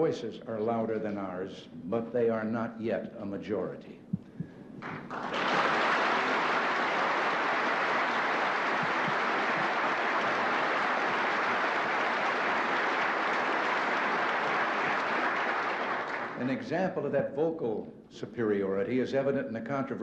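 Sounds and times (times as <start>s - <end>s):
large audience applauding: 4.8s - 16.5s.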